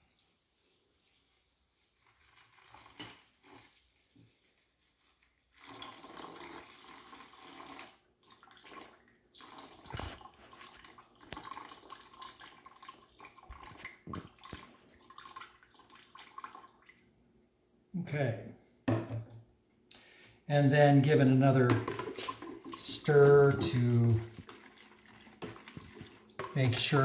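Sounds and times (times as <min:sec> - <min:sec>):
water pouring into a bucket: 0:02.0 - 0:03.9, 0:05.4 - 0:17.0, 0:21.4 - 0:27.0.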